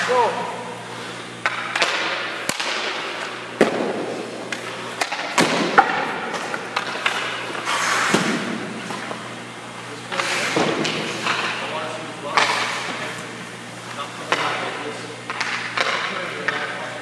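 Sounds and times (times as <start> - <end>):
hockey pucks cracking against pads: 1.4 - 9.3, 10.1 - 11.7, 12.3 - 13.3, 13.9 - 16.8
skate blades scraping ice: 6.0 - 9.3, 10.0 - 11.7, 12.3 - 13.3.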